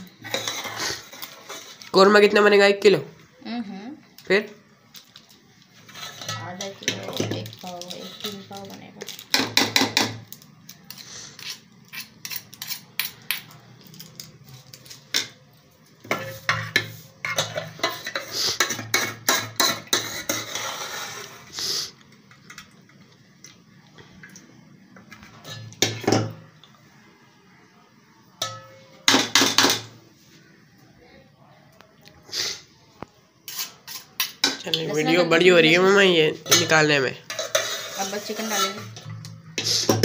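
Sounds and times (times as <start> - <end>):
steel spoon scraping metal pot: 0.1 - 1.9, 5.8 - 7.2, 7.8 - 10.1, 10.9 - 15.1, 16.0 - 21.6, 33.4 - 34.8, 36.4 - 40.0.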